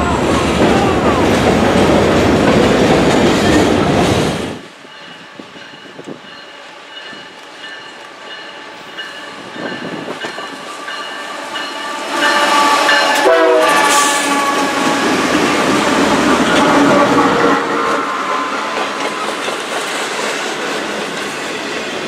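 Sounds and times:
locomotive engines rumbling: 0.0 - 22.0
locomotive air horn chord: 11.9 - 19.0.

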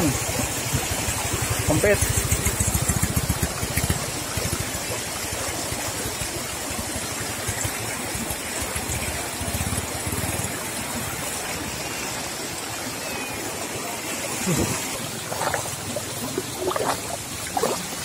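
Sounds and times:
water rushing across road: 0.0 - 18.0
small motorcycle engine chugging: 0.6 - 10.9.

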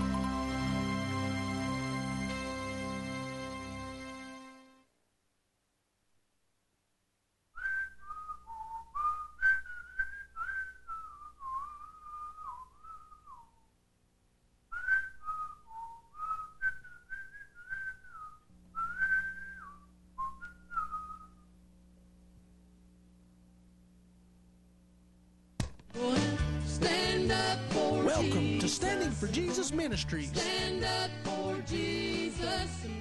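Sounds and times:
faint steady hum: 0.0 - 33.0
person whistling a tune: 7.6 - 13.7, 14.7 - 21.5.

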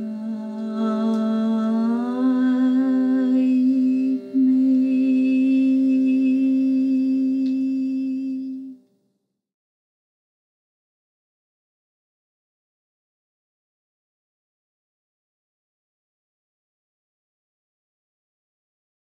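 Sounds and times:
woman humming: 0.0 - 8.8
quiet instrumental backing: 0.0 - 9.1.

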